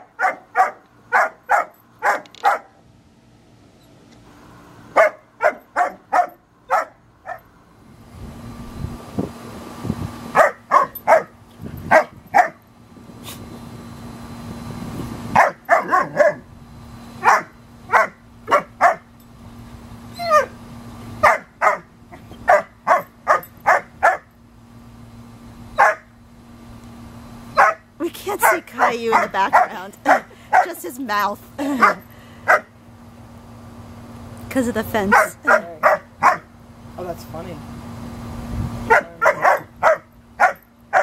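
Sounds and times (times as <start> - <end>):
puppy barking: 0.0 - 2.8, 5.0 - 7.4, 10.4 - 12.6, 15.4 - 16.4, 17.2 - 19.1, 20.2 - 20.6, 21.2 - 24.3, 25.8 - 26.1, 27.5 - 30.8, 31.8 - 32.7, 35.1 - 36.5, 38.9 - 41.0
puppy yelp: 20.1 - 20.6, 38.9 - 41.0.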